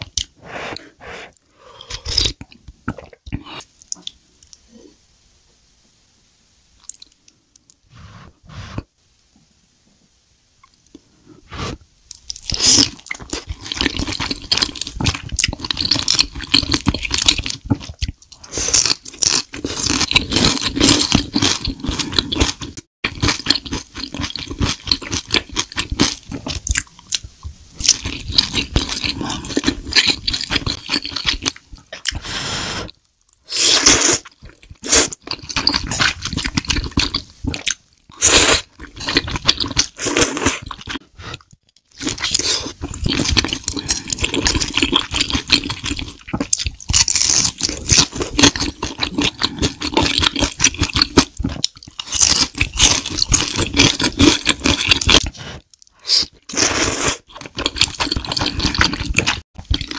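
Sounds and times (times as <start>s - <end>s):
crunching and chewing food: 12.1s - 32.2s, 32.9s - 59.9s.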